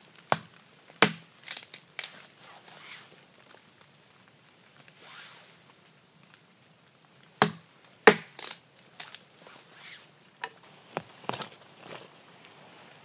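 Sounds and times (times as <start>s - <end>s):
hatchet chopping wood: 0.3s - 1.6s, 7.4s - 8.6s.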